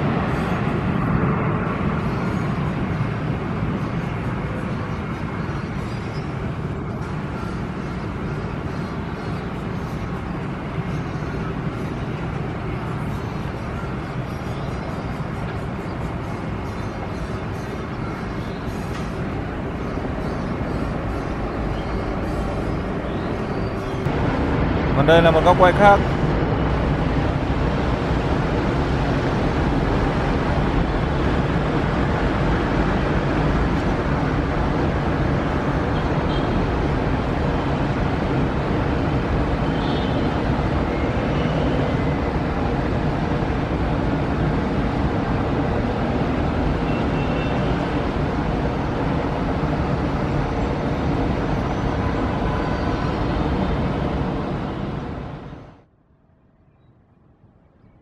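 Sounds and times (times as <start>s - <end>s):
jet engines roaring: 18.8s - 55.8s.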